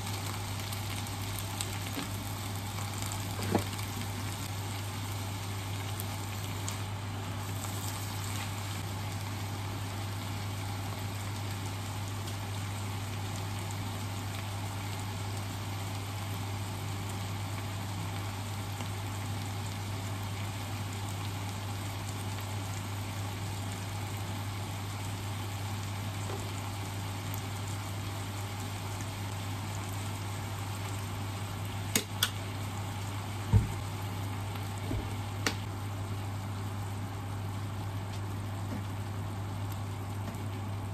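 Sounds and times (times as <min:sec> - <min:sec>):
meat sizzling in a frying pan: 0:00.0 - 0:40.9.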